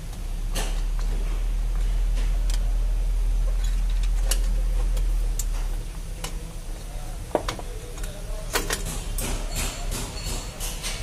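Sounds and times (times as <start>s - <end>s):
low steady hum: 0.0s - 11.0s
light metal clicks and clinks: 8.0s - 11.0s.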